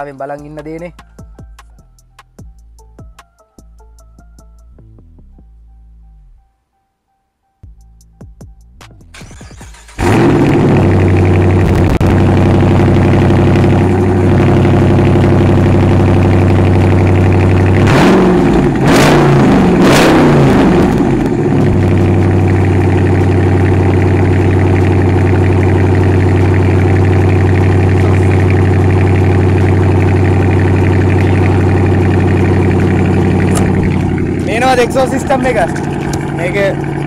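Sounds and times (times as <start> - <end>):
car engine idling: 9.1 - 37.0
engine revving with sharp cracks: 9.1 - 37.0.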